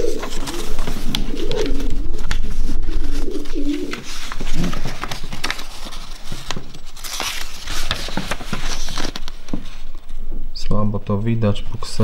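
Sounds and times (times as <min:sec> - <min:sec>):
pigeons cooing: 0:00.0 - 0:05.3
paper rustling and clicking: 0:00.0 - 0:10.2.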